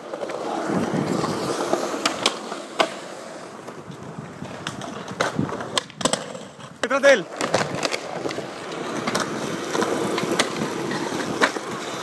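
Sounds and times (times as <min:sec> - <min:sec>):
skateboard clacks: 0:00.0 - 0:12.0
skateboard wheels rolling on concrete: 0:00.0 - 0:12.0.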